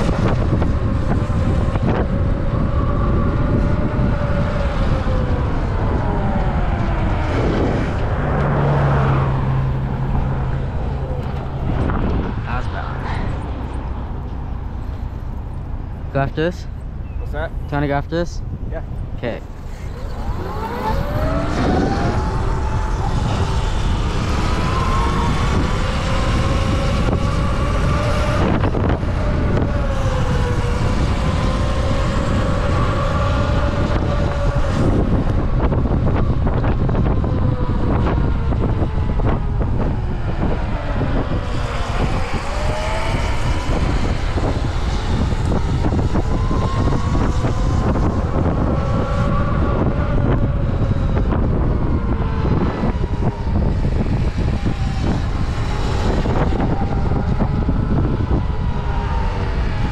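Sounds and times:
vehicle motor whine: 0.0 - 59.9
wind rumble on microphone: 0.0 - 59.9.

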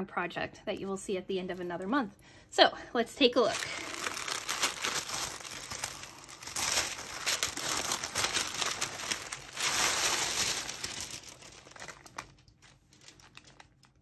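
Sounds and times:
tissue paper rustling and crinkling: 3.4 - 14.0.

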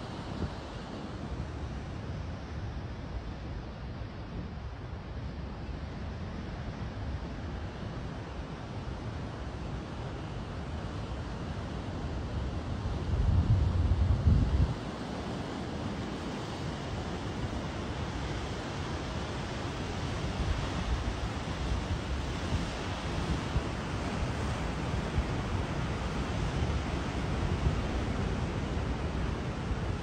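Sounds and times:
wind rumble on microphone: 10.6 - 30.0.

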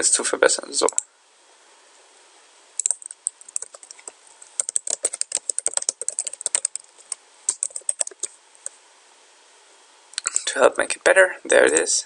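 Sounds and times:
computer keyboard typing: 2.8 - 8.3.

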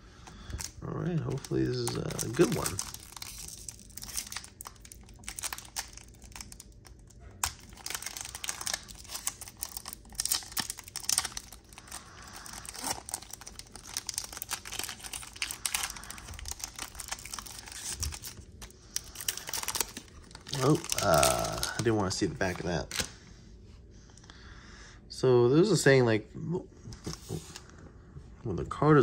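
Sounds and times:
foil wrapper tearing and crinkling: 0.3 - 23.1.

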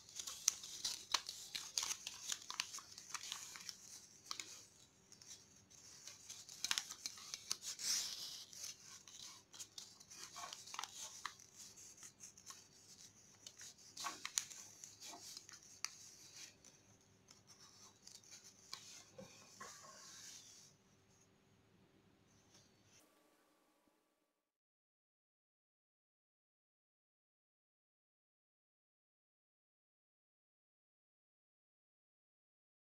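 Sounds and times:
paper rustling and crackling: 0.0 - 20.7.

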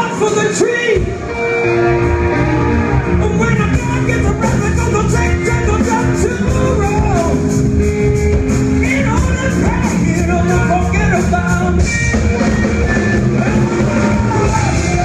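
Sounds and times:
electric guitar: 0.9 - 15.0
man singing: 3.2 - 7.5, 8.8 - 15.0
drums with cymbal beat: 3.6 - 15.0.

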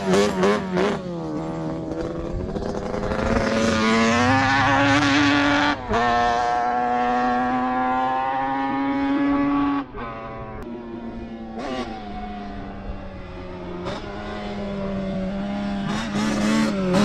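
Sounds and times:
quad engine at high revs: 0.0 - 10.7, 11.4 - 17.0.

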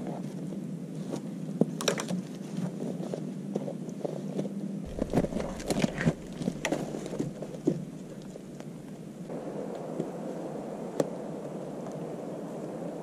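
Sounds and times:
wooden poles knocking: 4.9 - 9.0
footsteps crunching in snow: 4.9 - 9.3.

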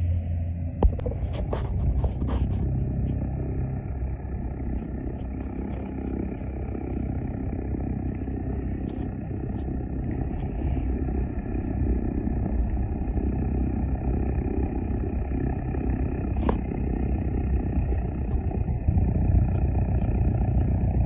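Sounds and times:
light aircraft propeller engine: 0.0 - 21.0.

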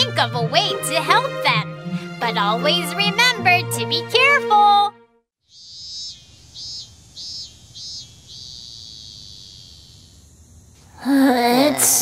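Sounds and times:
high-pitched chirping: 5.5 - 10.3.

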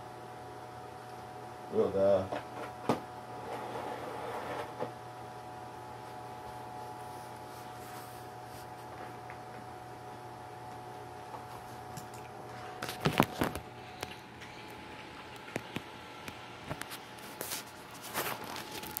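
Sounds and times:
electrical hum: 0.0 - 19.0
dog eating from bowl: 11.4 - 15.8.

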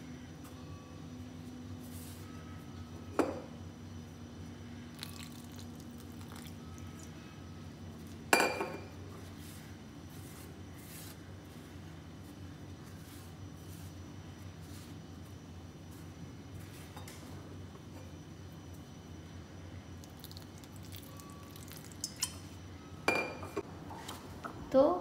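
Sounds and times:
dough scraping: 9.2 - 15.1.

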